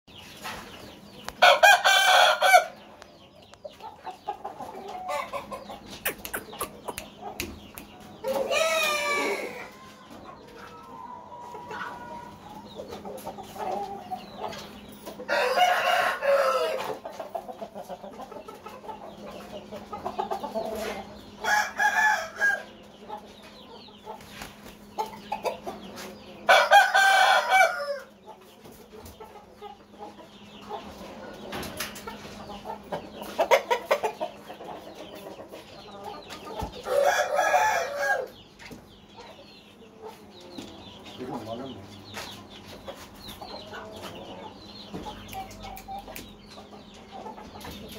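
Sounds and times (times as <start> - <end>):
quiet clucking: 3.4 - 8.3
rooster crowing: 8.4 - 9.7, 15.3 - 16.8, 26.5 - 28.1.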